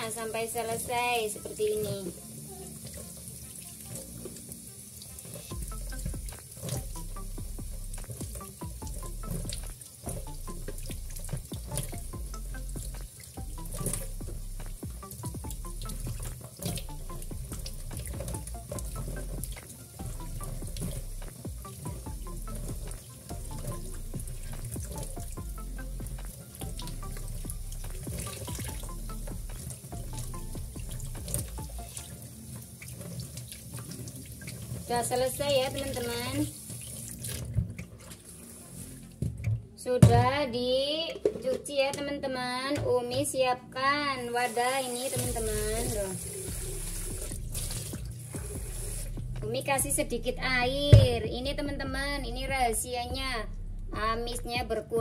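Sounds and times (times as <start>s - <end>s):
background music: 0.0s - 55.0s
tap water splashing into sink: 2.8s - 38.3s, 44.9s - 49.4s
small splashes and clicks: 8.0s - 20.0s.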